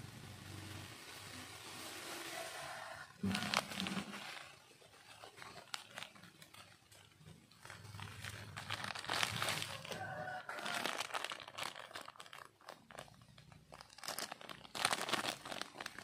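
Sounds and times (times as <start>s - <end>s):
burlap pouch rustling and crinkling: 3.2s - 16.0s.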